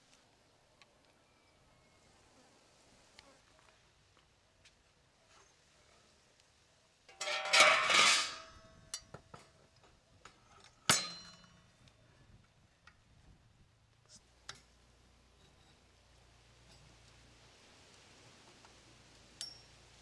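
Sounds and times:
metal pan clattering on rod: 7.1 - 8.6, 10.9 - 11.5
ringing metal clank: 7.1 - 9.0, 10.9 - 11.6.

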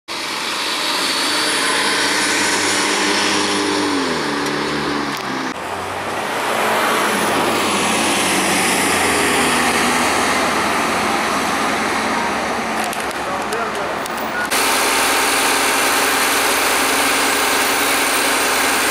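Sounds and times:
high whine: 0.1 - 12.5
bus accelerating away: 0.1 - 18.9
diesel bus engines running: 0.1 - 18.9.

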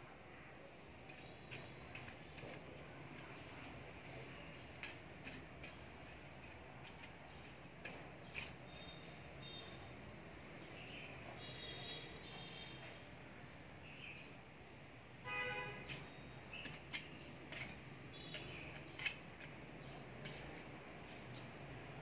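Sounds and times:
trowel digging into soil: 1.1 - 3.8, 4.6 - 9.0, 15.9 - 21.4.

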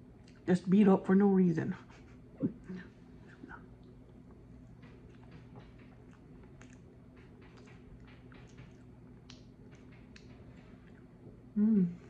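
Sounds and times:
low steady hum: 0.0 - 12.0
chewing mouth sounds: 5.0 - 11.2.

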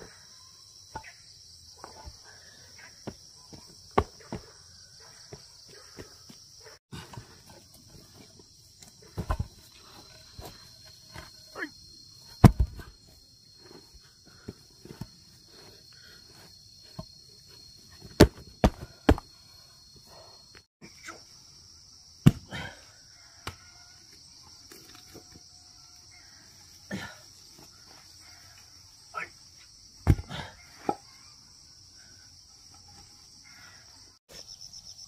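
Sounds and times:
insects buzzing: 0.0 - 35.0
paving slabs thudding on soil: 3.0 - 4.5, 8.9 - 9.7, 12.4 - 13.0, 18.0 - 19.3, 22.2 - 22.7, 30.0 - 31.1.

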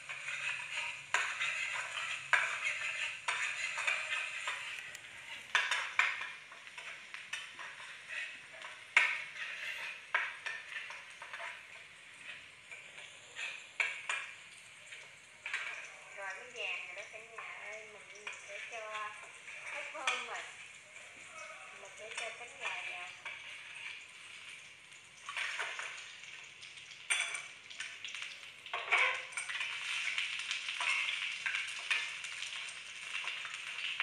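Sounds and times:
metal spatula scraping wok: 0.0 - 14.3, 18.2 - 24.5, 28.7 - 32.4
hot oil sizzling: 0.0 - 34.0.

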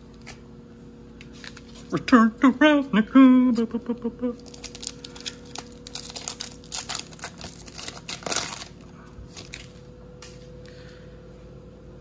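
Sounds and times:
foil wrapper crinkling and tearing: 4.4 - 9.8.

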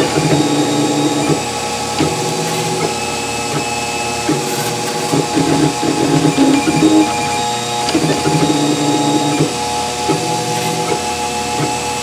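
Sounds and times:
small printer clicks: 0.0 - 12.0
steady printer hum: 0.0 - 12.0
stepper motors whining: 0.0 - 12.0.

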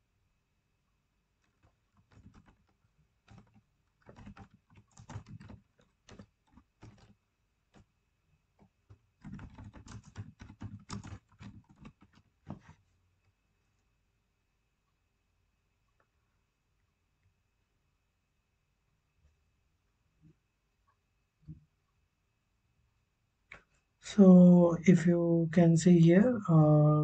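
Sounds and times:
computer keyboard typing: 1.4 - 7.9, 8.6 - 12.8.

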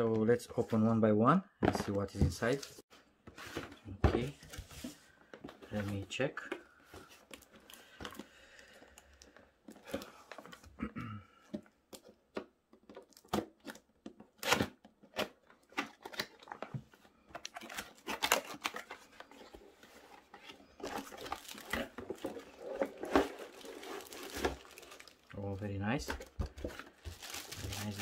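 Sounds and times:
packaging rustling: 12.9 - 28.0.

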